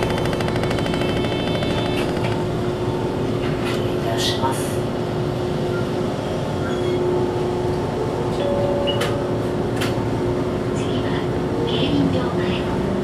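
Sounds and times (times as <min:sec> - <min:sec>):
sharp clicks: 0:00.0 - 0:02.4
streetcar rumbling: 0:00.0 - 0:13.0.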